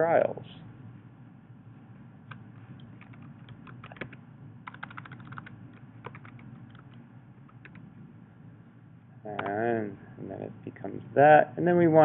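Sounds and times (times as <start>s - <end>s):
keyboard typing clicks: 2.3s - 7.8s.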